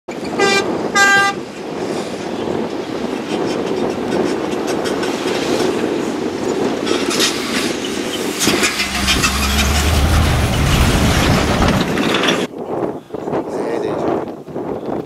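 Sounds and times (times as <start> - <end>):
diesel truck engine running: 8.4 - 12.5.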